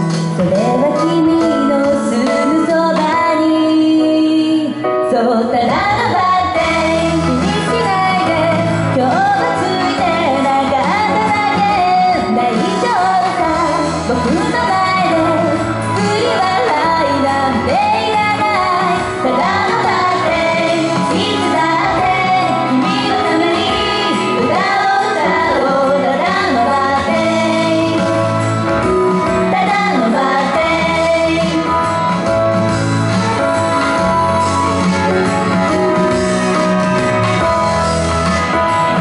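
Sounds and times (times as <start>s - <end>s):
backing track: 0.0s - 39.0s
women singing pop: 0.2s - 28.4s, 29.2s - 32.0s.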